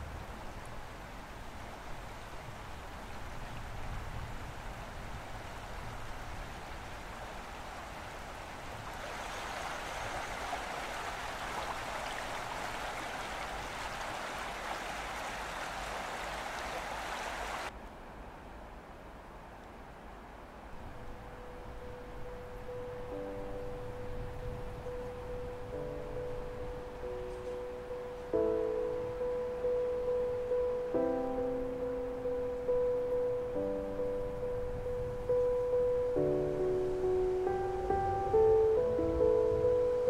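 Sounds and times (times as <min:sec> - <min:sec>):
soft steady hiss: 0:00.0 - 0:40.0
stream running over rock: 0:06.6 - 0:17.7.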